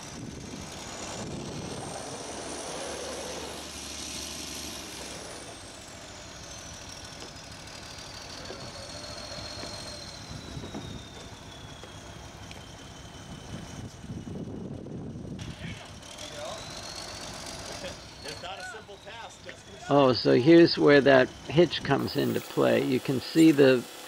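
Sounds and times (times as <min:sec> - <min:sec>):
truck engine idling: 0:00.0 - 0:24.0
thin high whine: 0:17.7 - 0:24.0.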